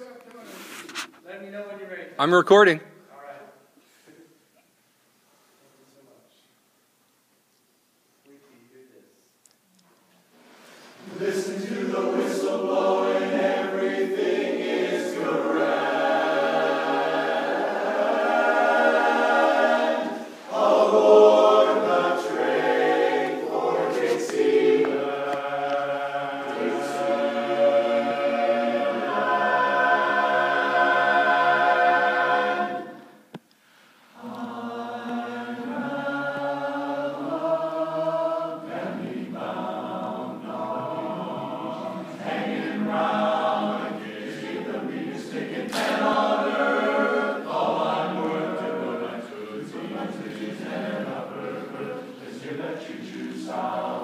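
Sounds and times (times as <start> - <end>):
men's chorus singing a cappella: 11.0 - 33.2, 34.2 - 54.0.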